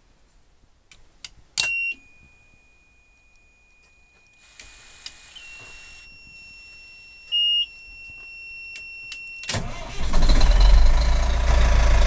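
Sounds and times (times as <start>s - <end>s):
warning buzzer high tone: 4.4s - 8.2s
diesel engine cranking and idling: 9.5s - 12.0s.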